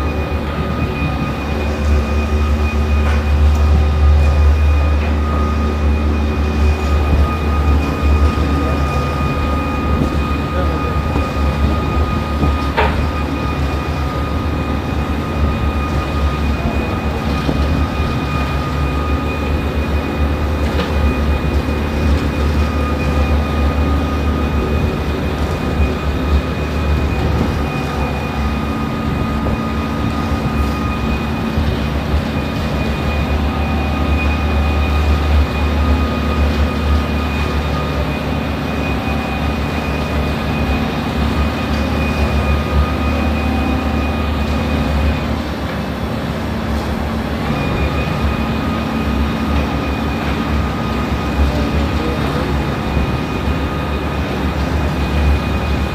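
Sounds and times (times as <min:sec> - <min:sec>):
deep diesel rumble: 0:00.0 - 0:55.9
thin steady whine: 0:00.0 - 0:55.9.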